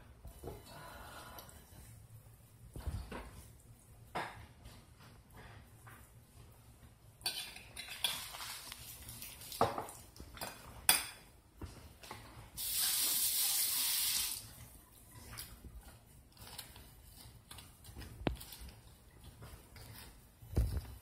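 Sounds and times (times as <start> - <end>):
dishes and utensils clinking: 7.2 - 8.7
kitchen tap running: 12.6 - 14.6.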